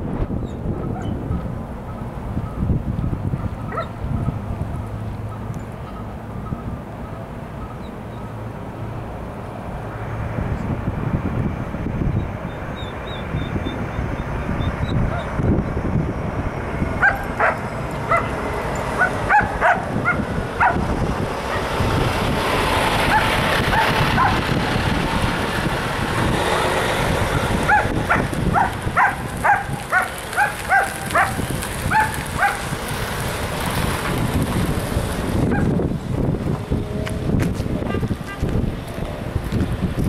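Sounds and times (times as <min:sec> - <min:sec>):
truck driving past: 0:00.0 - 0:40.0
dog barking: 0:00.8 - 0:01.2, 0:03.7 - 0:03.9, 0:15.1 - 0:15.3, 0:17.0 - 0:18.3, 0:19.0 - 0:20.8, 0:23.1 - 0:24.4, 0:27.7 - 0:32.6.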